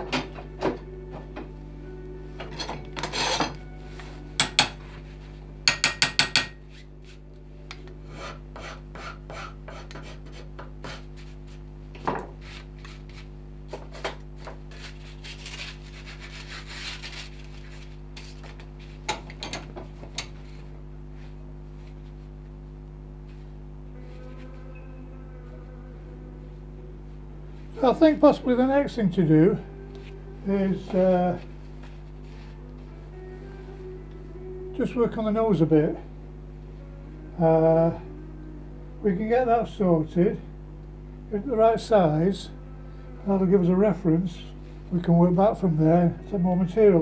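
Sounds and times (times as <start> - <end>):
hand rasp scraping wood: 8.1 - 11.6, 14.7 - 18.3.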